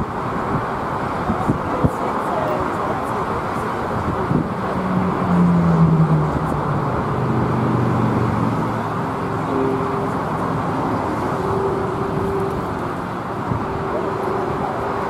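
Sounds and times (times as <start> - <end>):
jet engines roaring at takeoff: 0.0 - 15.0
low hum dropping in pitch: 4.0 - 15.0.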